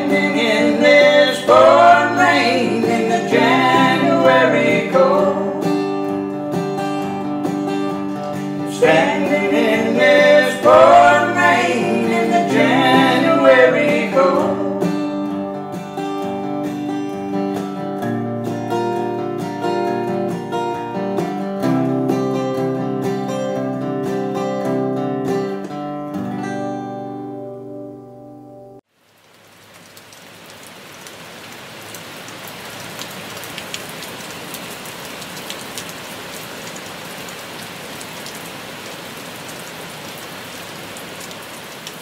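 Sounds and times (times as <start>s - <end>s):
man and woman singing in harmony: 0.0s - 5.9s, 8.7s - 14.9s
acoustic guitar strumming: 0.0s - 28.8s.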